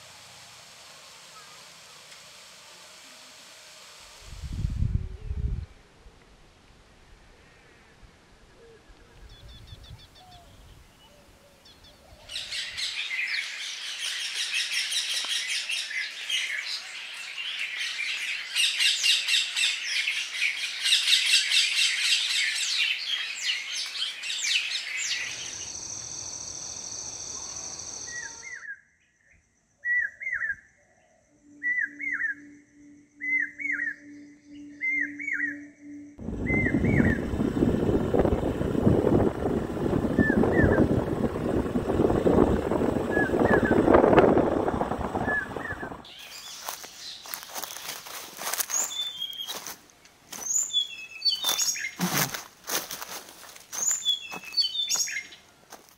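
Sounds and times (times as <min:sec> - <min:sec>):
steady high bird trill: 0:09.4 - 0:28.7, 0:40.0 - 0:41.4, 0:45.2 - 0:49.7, 0:50.3 - 0:52.0, 0:53.7 - 0:55.4.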